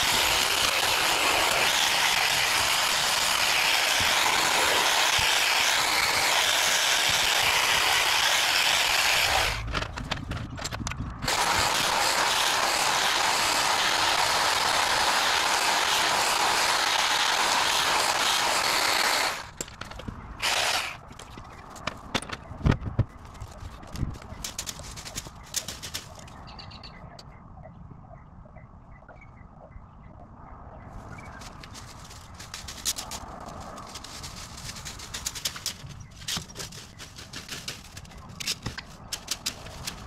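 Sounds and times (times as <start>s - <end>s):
hedge trimmer running: 0.0s - 9.6s, 11.3s - 19.6s, 20.4s - 21.0s
knocks and rustles: 9.6s - 11.2s, 21.0s - 26.4s, 31.2s - 40.0s.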